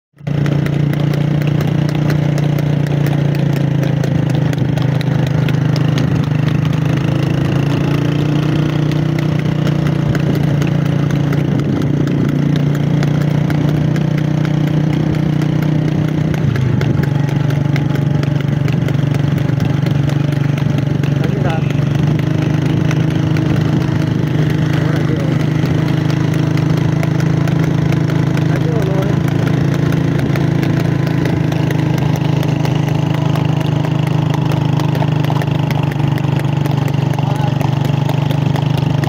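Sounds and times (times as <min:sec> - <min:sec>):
motor vehicle engine droning: 0:00.1 - 0:39.0.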